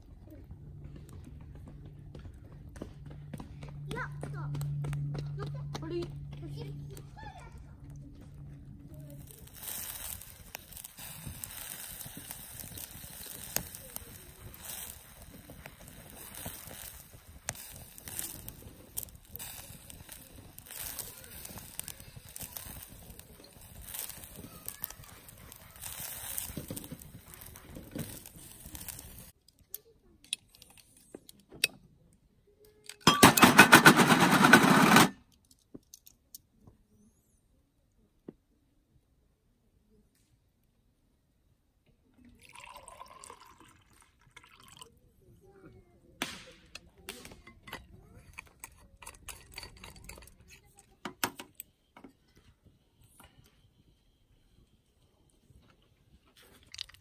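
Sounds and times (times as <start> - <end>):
wood fire crackling and hissing: 0.0 - 31.5, 42.2 - 57.0
utensils clinking on metal tableware: 33.1 - 35.1, 47.6 - 50.6.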